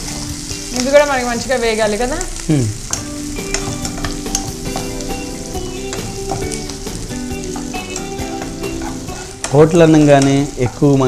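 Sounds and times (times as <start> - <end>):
soft background music: 0.0 - 11.0
vegetables sizzling in hot oil: 0.0 - 11.0
ladle scraping pan: 7.6 - 10.9.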